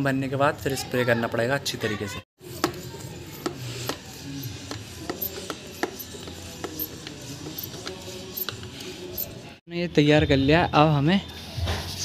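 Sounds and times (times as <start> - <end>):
hand pump clicking and squeaking: 2.6 - 9.5.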